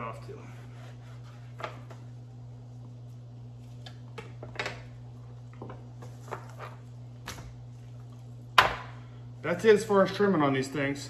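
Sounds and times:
steady low hum: 0:00.0 - 0:11.0
knife scraping cutting board: 0:00.4 - 0:01.9.

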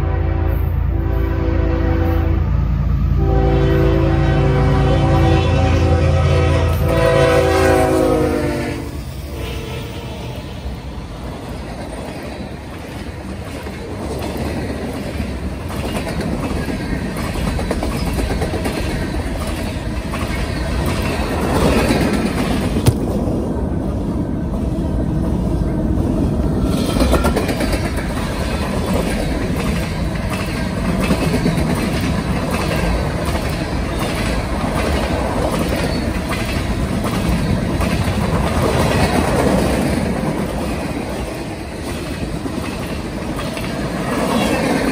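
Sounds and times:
freight train rumble: 0:00.0 - 0:44.9
train wheels clattering on rails: 0:11.1 - 0:23.2, 0:24.4 - 0:44.9.

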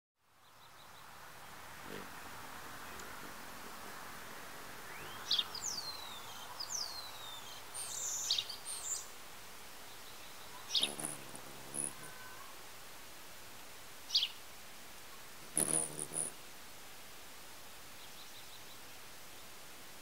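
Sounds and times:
faint steady hiss: 0:00.2 - 0:20.0
hummingbird chirps and squeaks: 0:10.7 - 0:12.3, 0:15.4 - 0:16.4.

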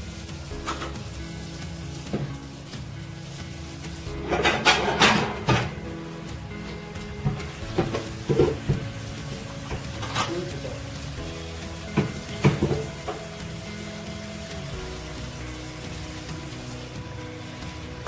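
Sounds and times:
curry sizzling in a frying pan: 0:00.0 - 0:18.0
soft background music: 0:00.0 - 0:18.0
lid and spoon knocking pan: 0:04.2 - 0:05.8.

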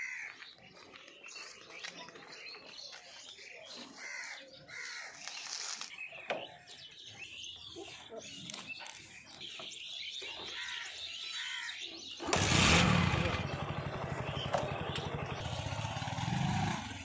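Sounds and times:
birds chirping: 0:00.0 - 0:17.0
motorcycle engine starting and idling: 0:12.2 - 0:17.0.

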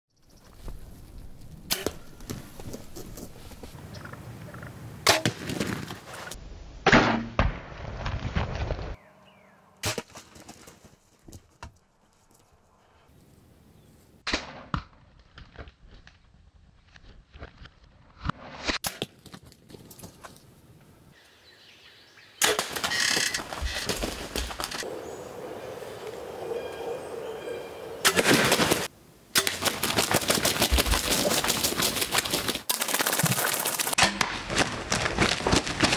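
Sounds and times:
arrows striking with sharp thwacks: 0:01.7 - 0:02.1, 0:05.0 - 0:05.9, 0:09.8 - 0:10.7, 0:22.4 - 0:24.8, 0:28.0 - 0:30.5
bow shot: 0:06.8 - 0:09.0, 0:14.2 - 0:15.0, 0:22.4 - 0:23.0
turkeys flapping and rustling: 0:22.4 - 0:26.3, 0:28.0 - 0:35.9.

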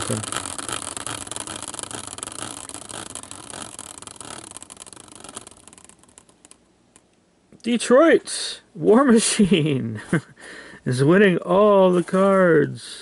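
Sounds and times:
fast clicking of spinning wheel: 0:00.0 - 0:06.6
prize wheel bearing whirring: 0:00.0 - 0:06.6.

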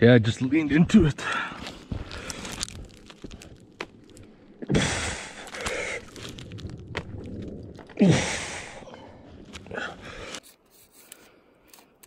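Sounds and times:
gloves scraping on bark: 0:09.6 - 0:12.0.

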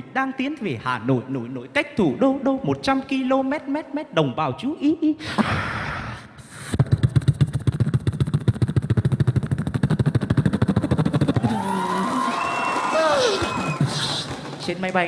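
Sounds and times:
beatboxer imitating warplane: 0:06.5 - 0:11.6.

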